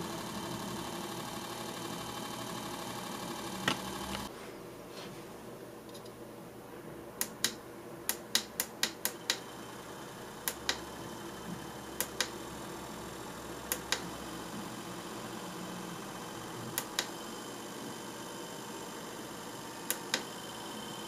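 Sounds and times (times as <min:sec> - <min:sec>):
small motor humming: 0:00.0 - 0:04.3, 0:09.2 - 0:21.0.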